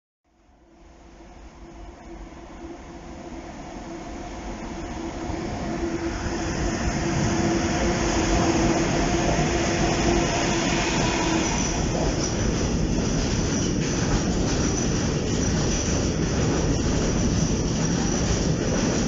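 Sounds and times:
electric locomotive hum: 0:00.6 - 0:19.0
train wheels rumbling on rails: 0:01.6 - 0:19.0
high wheel squeal: 0:09.3 - 0:12.4.

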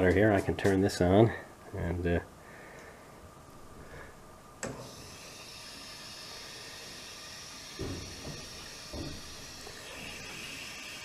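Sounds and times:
dull knocks: 0:07.8 - 0:09.3.

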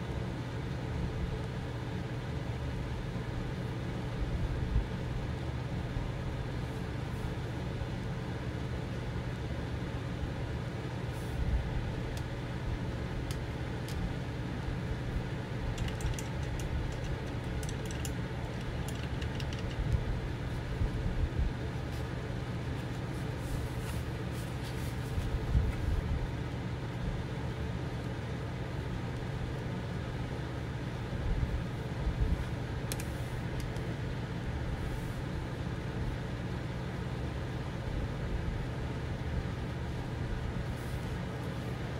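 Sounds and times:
room appliance humming: 0:00.0 - 0:41.9
light clicks and taps: 0:15.7 - 0:20.1.

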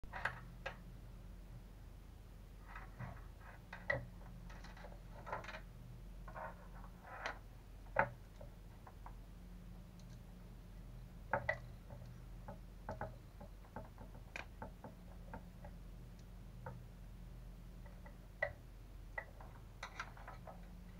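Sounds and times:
low steady hum: 0:00.0 - 0:20.9
small clicks and taps: 0:11.3 - 0:16.8, 0:17.8 - 0:20.7.

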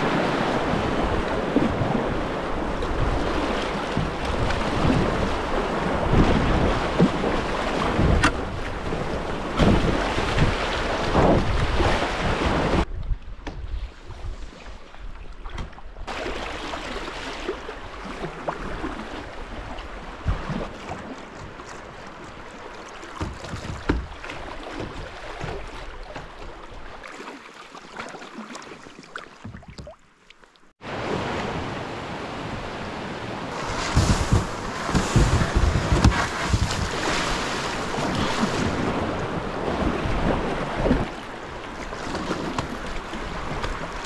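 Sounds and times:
river water rushing and splashing: 0:00.0 - 0:12.9, 0:16.1 - 0:44.0
wind buffeting microphone: 0:33.5 - 0:41.2.

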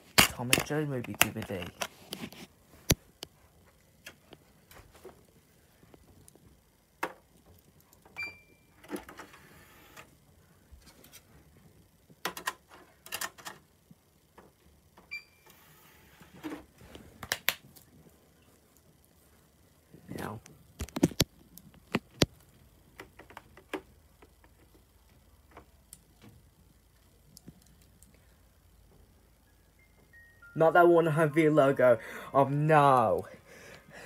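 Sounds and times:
clicks and knocks of handling: 0:00.1 - 0:03.3.

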